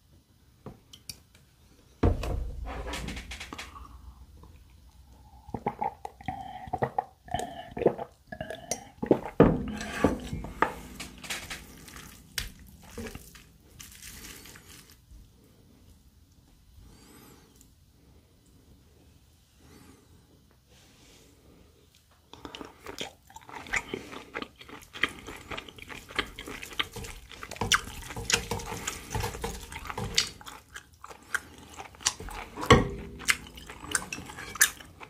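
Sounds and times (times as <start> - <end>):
gulping milk: 5.1 - 9.9.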